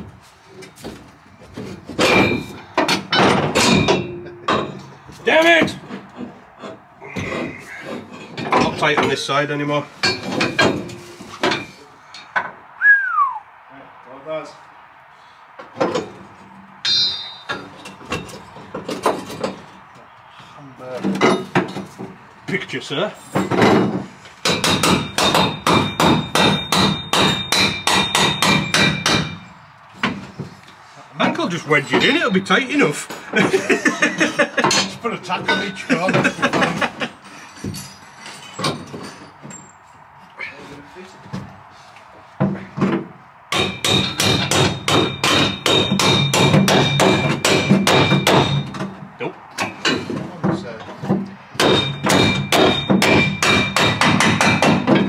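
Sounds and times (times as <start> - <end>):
hammer striking metal: 2.0 - 4.9, 16.8 - 18.4, 23.4 - 29.5, 43.5 - 48.9, 51.6 - 55.0
high ringing tone: 16.8 - 17.6
hammer blows on steel: 16.8 - 17.8.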